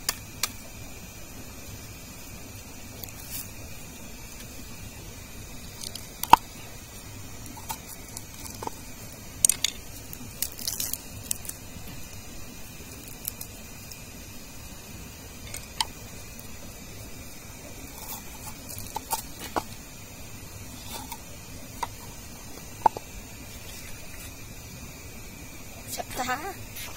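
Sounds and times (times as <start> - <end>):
roots and stalks snapping: 7.4 - 12.2, 12.9 - 14.0.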